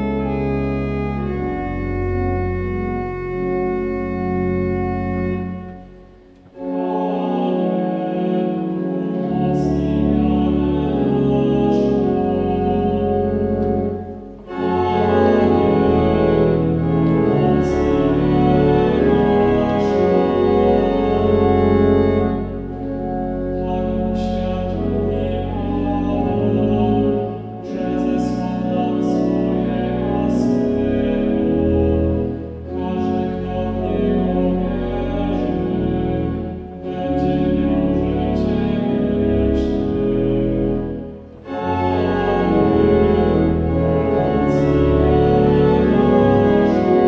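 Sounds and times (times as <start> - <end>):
pipe organ playing a hymn: 0.0 - 47.0.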